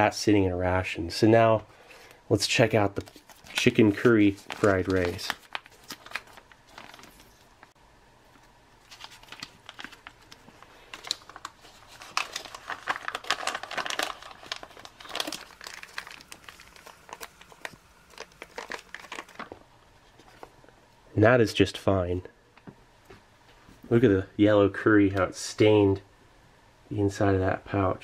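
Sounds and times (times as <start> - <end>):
foil pouch crinkling: 2.7 - 7.8, 8.8 - 20.5.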